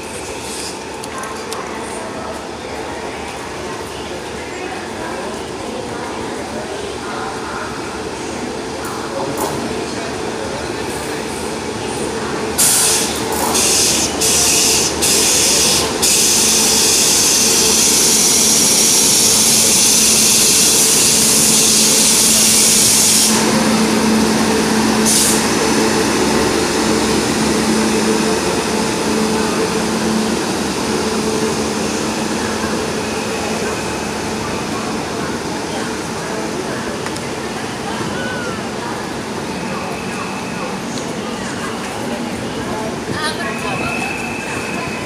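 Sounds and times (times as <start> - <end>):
locomotive air hisses: 12.6 - 30.4.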